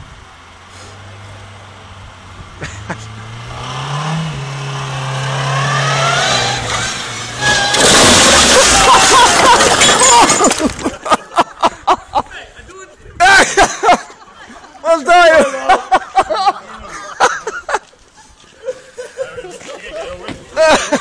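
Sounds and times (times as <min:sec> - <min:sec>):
car engine revving: 0:00.2 - 0:09.6
tyres squealing on paving: 0:05.7 - 0:11.0.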